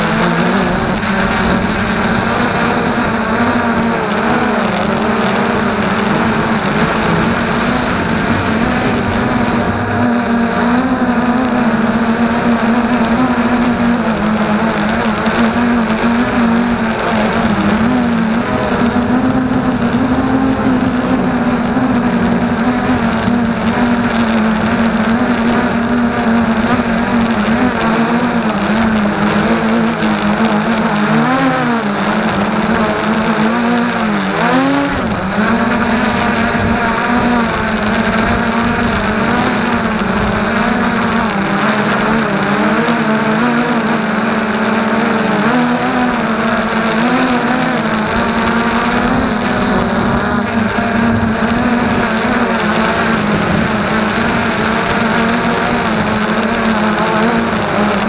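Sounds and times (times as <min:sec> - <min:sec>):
quadcopter propellers buzzing: 0:00.0 - 0:58.0.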